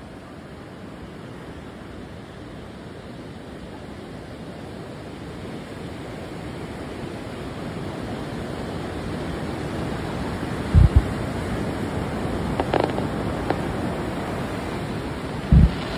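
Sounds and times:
surf breaking on beach: 8.6 - 15.9
deep thumps: 10.8 - 11.1, 15.5 - 15.9.

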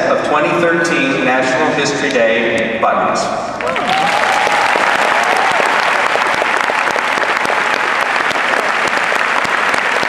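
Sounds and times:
crowd whooping: 3.6 - 10.0
large crowd applauding: 3.6 - 10.0.

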